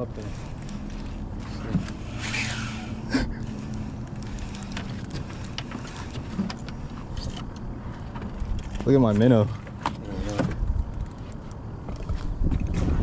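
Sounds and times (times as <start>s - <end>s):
low motor hum: 0.0s - 13.0s.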